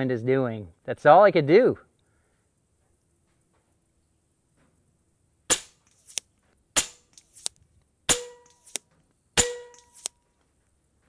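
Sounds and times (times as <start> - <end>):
air rifle shots: 5.5 - 6.2, 6.8 - 7.2.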